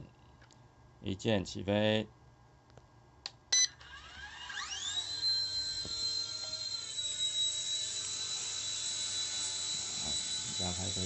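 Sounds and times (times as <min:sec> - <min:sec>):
electronic beep: 0:03.5 - 0:03.8
toy helicopter motor whine: 0:03.8 - 0:11.0.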